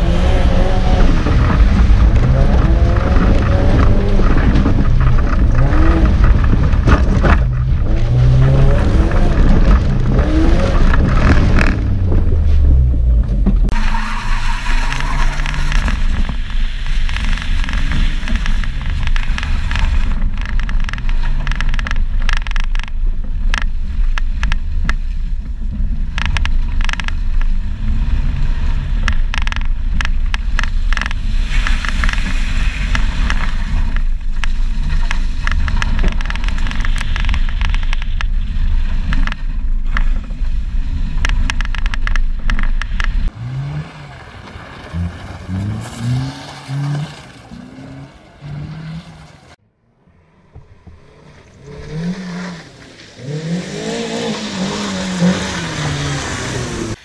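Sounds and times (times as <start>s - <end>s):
car engine revving: 0.0s - 22.2s, 39.2s - 49.6s, 50.3s - 57.0s
tyres rumbling on loose dirt: 0.0s - 57.0s.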